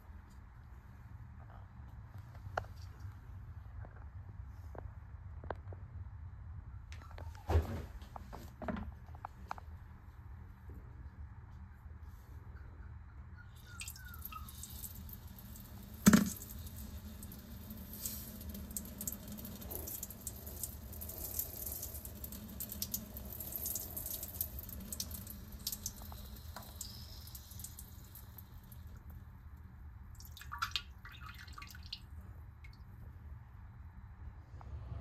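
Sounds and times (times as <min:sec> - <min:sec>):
urine splashing into toilet: 0:13.7 - 0:29.1, 0:30.2 - 0:32.0.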